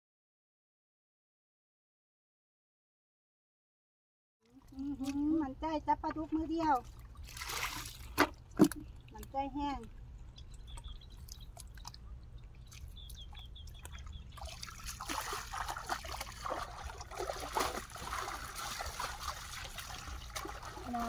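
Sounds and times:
hands splashing in water: 7.2s - 8.9s, 10.8s - 21.0s.

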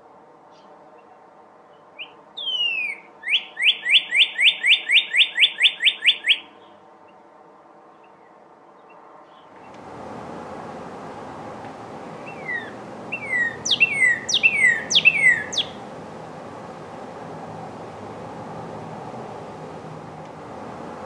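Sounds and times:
bird singing whistled notes: 2.0s - 6.5s, 11.2s - 20.0s.

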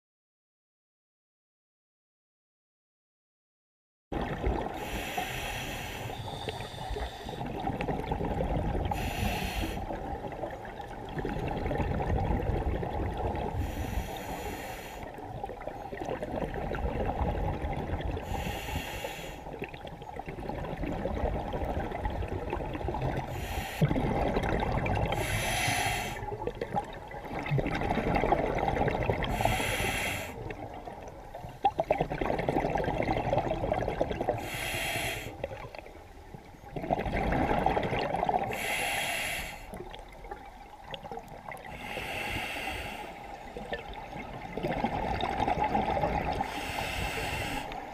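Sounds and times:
diver breathing through regulator: 4.8s - 7.6s, 8.9s - 10.0s, 13.5s - 15.2s, 18.2s - 19.6s, 23.2s - 24.0s, 25.0s - 26.3s, 29.2s - 30.5s, 34.3s - 35.5s, 38.5s - 39.8s, 41.7s - 43.6s, 46.4s - 47.9s.

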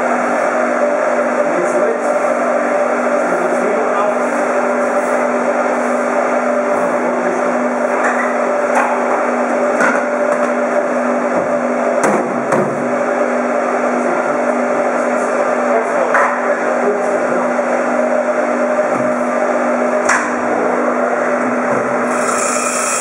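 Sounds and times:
motor humming: 17.9s - 23.0s.

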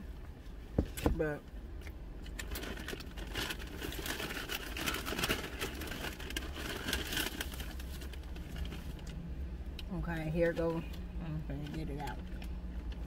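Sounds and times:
low hum inside car: 0.0s - 13.0s
paper bag rustling: 2.5s - 9.0s.

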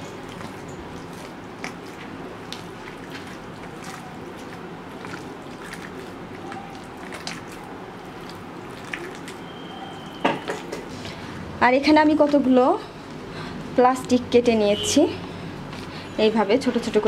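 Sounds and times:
hand kneading wet minced meat: 0.0s - 11.2s.

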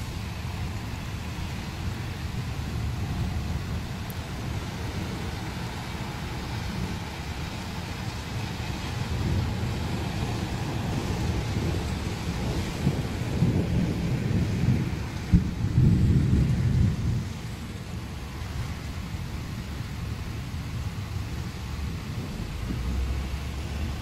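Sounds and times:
steady rain: 0.0s - 24.0s
thunder rumbling: 0.0s - 24.0s
sharp thunder crack: 9.1s - 17.4s.

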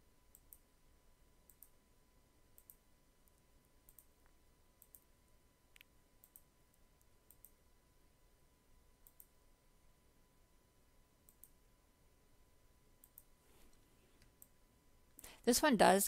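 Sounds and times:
computer mouse clicks: 0.3s - 0.7s, 1.4s - 1.8s, 2.6s - 5.1s, 5.7s - 7.6s, 9.0s - 9.4s, 11.2s - 11.6s, 13.0s - 15.3s.

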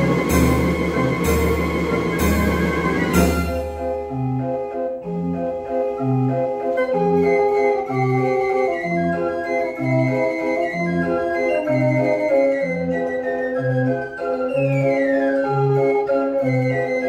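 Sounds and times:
street organ playing: 0.0s - 17.0s.

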